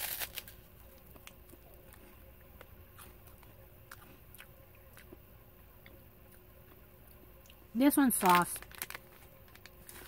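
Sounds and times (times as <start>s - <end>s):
faint chewing: 0.8s - 7.6s.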